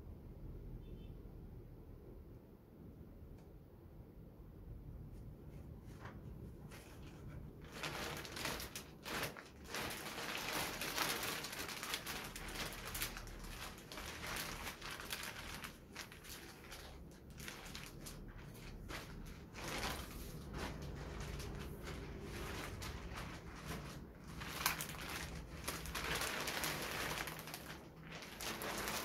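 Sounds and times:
plastic wrapping rustling: 5.8s - 29.0s.

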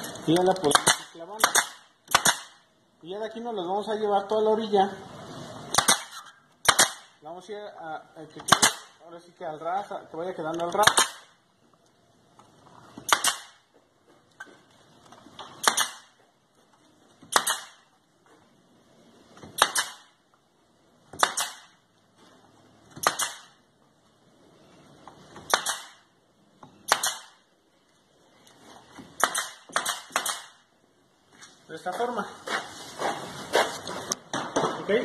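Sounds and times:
nail gun firing into wood: 0.6s - 2.6s, 5.7s - 7.2s, 8.4s - 9.0s, 10.7s - 11.3s, 13.0s - 13.6s, 15.6s - 16.1s, 17.2s - 17.8s, 19.4s - 20.2s, 21.1s - 21.8s, 22.9s - 23.6s, 25.4s - 26.0s, 26.8s - 27.4s, 29.2s - 30.6s.

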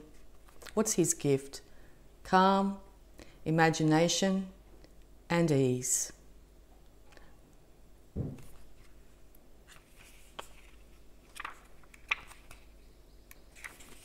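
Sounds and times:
soft thump: 8.2s - 8.6s
paper pages rustling: 9.6s - 12.7s, 13.5s - 14.0s.

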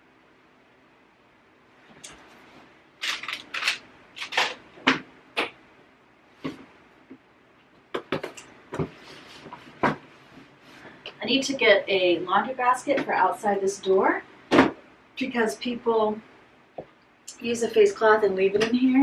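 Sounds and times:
rustling of cleaning things: 8.2s - 11.0s.

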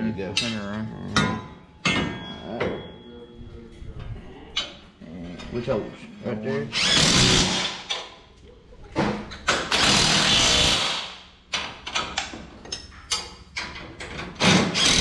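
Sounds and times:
metallic knocks: 0.2s - 3.1s
cordless drill driving bolts: 6.8s - 7.8s, 9.7s - 11.0s, 14.4s - 15.0s.

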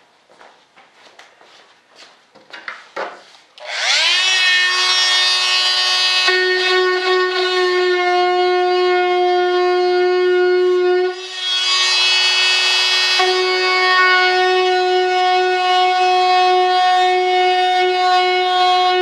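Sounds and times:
rotary tool whining: 3.6s - 9.2s, 11.0s - 19.0s.

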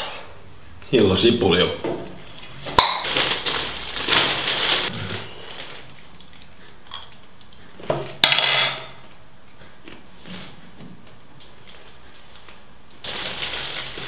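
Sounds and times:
paper towel rustling: 3.0s - 5.9s, 13.0s - 14.0s.

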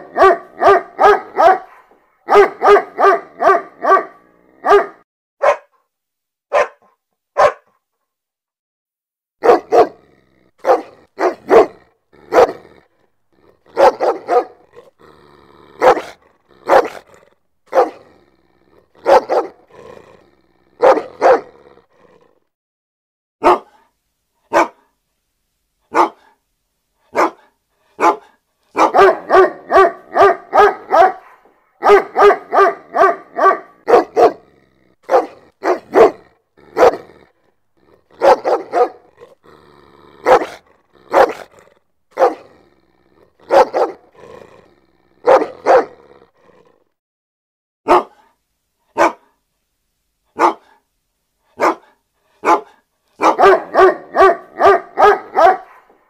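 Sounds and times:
dog barking loudly: 0.0s - 5.8s, 6.5s - 7.7s, 9.4s - 10.0s, 10.6s - 12.8s, 13.6s - 14.8s, 15.8s - 18.2s, 19.0s - 19.8s, 20.7s - 21.6s, 23.4s - 23.8s, 24.5s - 24.9s, 25.9s - 26.4s, 27.1s - 37.2s, 38.1s - 39.4s, 40.2s - 42.6s, 43.4s - 44.3s, 45.2s - 46.0s, 47.8s - 48.3s, 48.9s - 49.3s, 50.4s - 50.8s, 51.6s - 56.0s.

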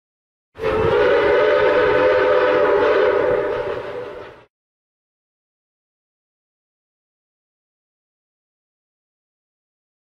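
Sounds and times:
train whistle chord: 0.6s - 4.5s.

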